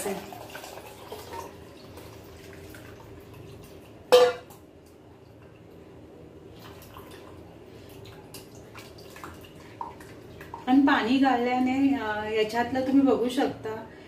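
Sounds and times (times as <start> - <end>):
liquid trickling into bowl: 0.0 - 4.6
steel kitchenware clank: 4.1 - 4.5.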